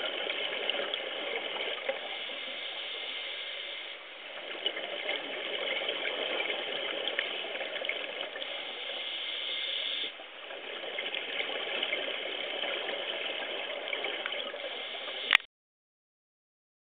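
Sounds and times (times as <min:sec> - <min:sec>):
underwater rushing and bubbling: 0:00.0 - 0:15.4
faint clicks: 0:15.2 - 0:15.5.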